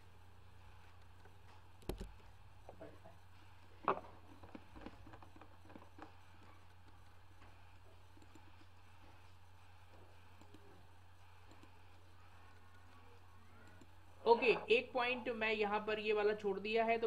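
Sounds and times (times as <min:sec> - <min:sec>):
low electrical hum: 0:00.0 - 0:17.0
faint clicks and taps: 0:00.8 - 0:10.8, 0:11.4 - 0:13.0.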